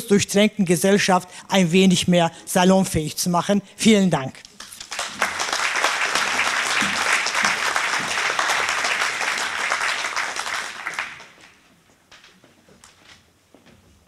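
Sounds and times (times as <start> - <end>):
audience applauding: 4.6 - 11.6.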